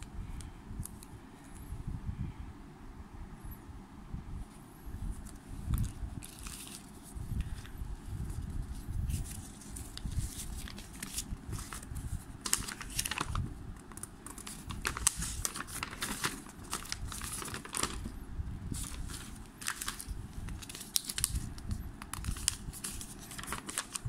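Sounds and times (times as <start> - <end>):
paper leaflet rustling: 5.1 - 24.0.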